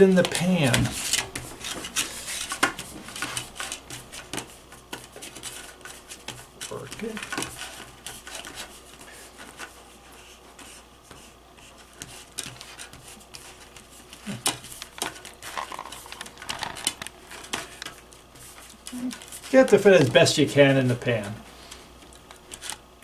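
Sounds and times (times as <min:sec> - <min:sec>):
hands rubbing dough: 0:00.0 - 0:22.8
foil pan clicks and crinkles: 0:14.3 - 0:18.0.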